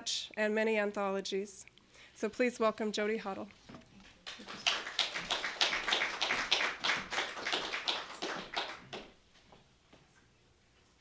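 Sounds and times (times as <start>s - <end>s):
audience applause: 4.2s - 9.1s.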